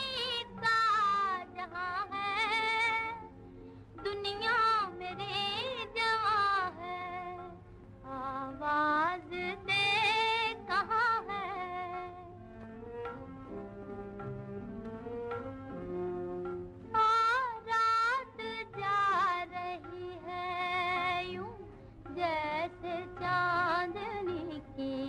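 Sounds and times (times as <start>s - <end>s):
woman singing: 0.0s - 3.3s, 4.0s - 12.3s, 16.9s - 25.0s
soft instrumental accompaniment: 0.0s - 25.0s.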